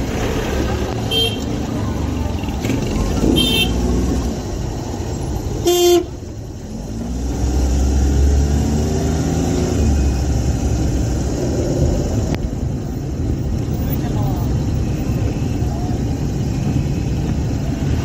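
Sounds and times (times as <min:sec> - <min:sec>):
car driving rumble: 0:00.0 - 0:18.0
vehicle horn beep: 0:01.1 - 0:01.5, 0:03.2 - 0:03.8, 0:05.6 - 0:06.1.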